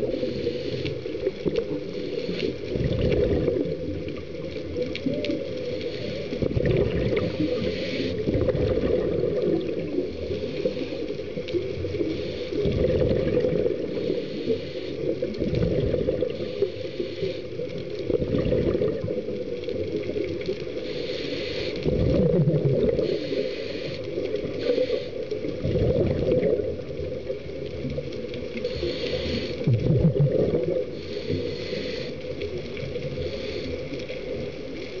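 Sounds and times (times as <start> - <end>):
regulator hiss: 0.0 - 2.7, 5.1 - 6.4, 7.2 - 8.3, 9.7 - 12.6, 13.8 - 15.4, 16.3 - 17.7, 20.6 - 21.9, 22.9 - 25.5, 28.6 - 29.7, 30.9 - 34.6
exhaled bubbles rumbling: 0.0 - 21.0, 21.8 - 35.0.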